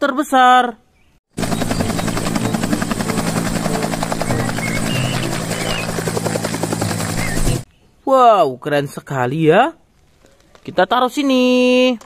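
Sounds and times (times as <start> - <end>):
helicopter rotor beating: 1.3 - 7.7
helicopter turbine: 1.3 - 7.7.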